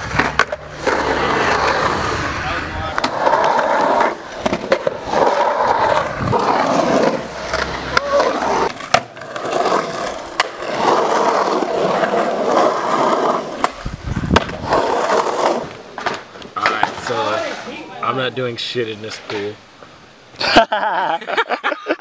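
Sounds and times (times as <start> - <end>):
skateboard clacks: 0.0 - 17.6
skateboard wheels rolling: 0.0 - 18.3.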